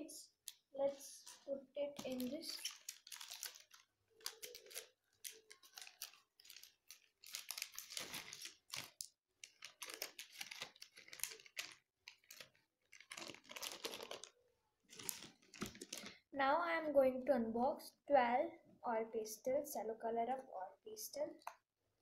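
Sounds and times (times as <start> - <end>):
plastic packet rustling: 0.4 - 16.3.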